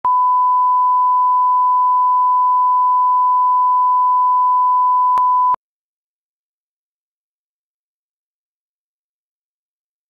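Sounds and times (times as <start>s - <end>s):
electronic test tone: 0.0s - 5.6s.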